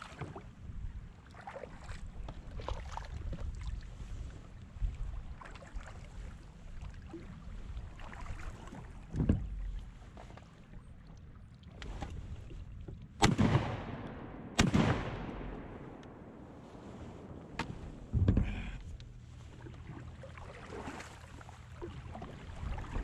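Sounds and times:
shotgun blasts: 13.2s - 16.6s.

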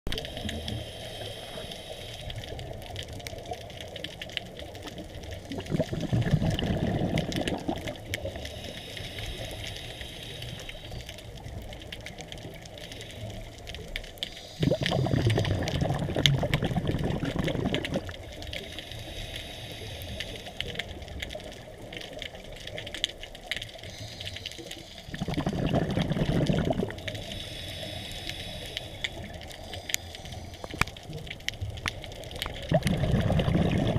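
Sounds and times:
hissing regulator inhales: 0.3s - 2.5s, 8.4s - 11.1s, 18.6s - 20.6s, 23.8s - 25.3s, 27.1s - 30.9s
exhaled bubbles rushing: 5.4s - 8.2s, 14.6s - 18.3s, 25.1s - 27.0s, 32.3s - 33.9s.

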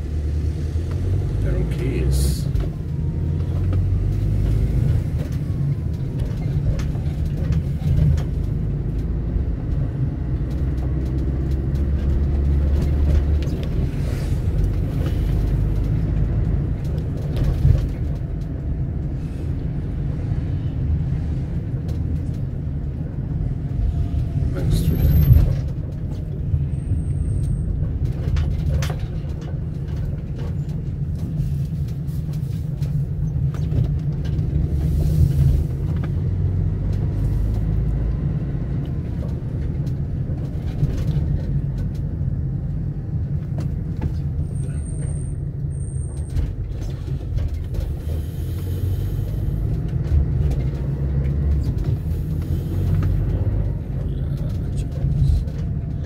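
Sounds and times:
vehicle rumble: 0.0s - 56.0s.

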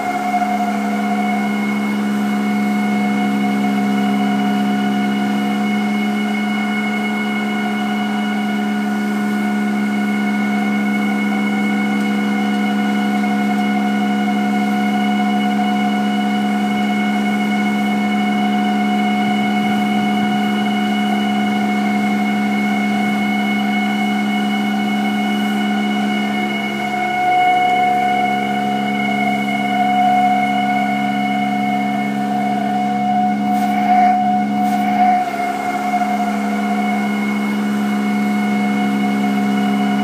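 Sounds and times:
steady drone of held tones: 0.0s - 40.0s.

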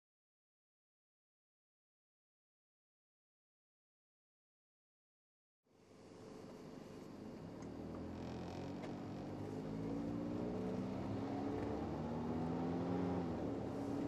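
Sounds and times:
road noise: 5.9s - 14.0s
car engine accelerating: 7.6s - 14.0s.

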